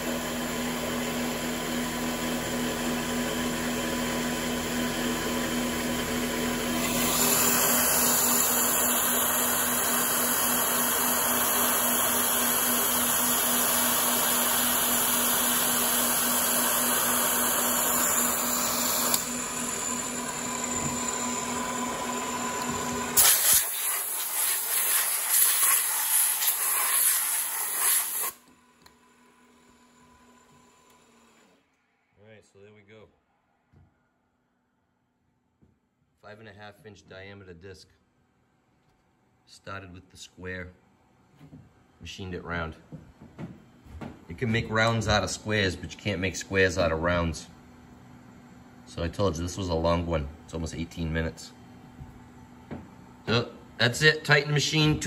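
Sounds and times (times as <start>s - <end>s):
milling spindle running: 0.2s - 26.8s
hiss of coolant spray: 23.2s - 28.4s.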